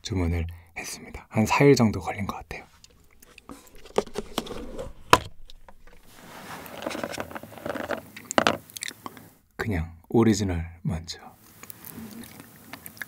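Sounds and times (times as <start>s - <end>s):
chocolate balls rattling: 5.3s - 8.7s.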